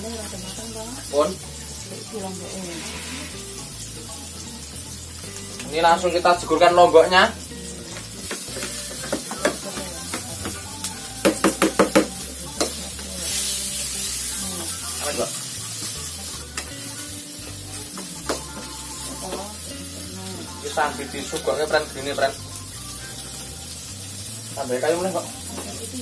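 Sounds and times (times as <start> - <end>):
chillies sizzling in hot oil: 0.0 - 26.0
metal spatula scraping wok: 2.4 - 3.8.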